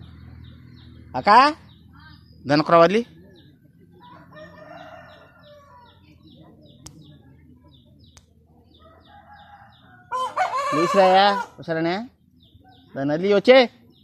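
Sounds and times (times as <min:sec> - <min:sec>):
small bird chirping: 0:00.0 - 0:14.0
distant rooster crowing: 0:04.0 - 0:06.0, 0:08.8 - 0:11.6.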